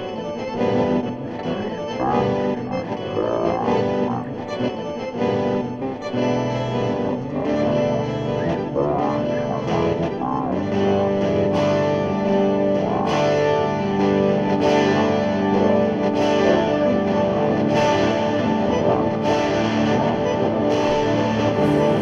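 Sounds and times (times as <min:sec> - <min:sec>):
electric guitar with effects: 0:00.0 - 0:22.0.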